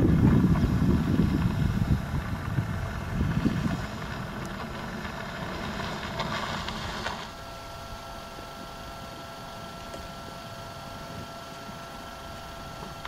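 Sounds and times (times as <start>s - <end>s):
wind buffeting microphone: 0.0s - 8.1s
faint steady hum: 0.0s - 13.0s
elephant splashing water: 3.2s - 7.4s.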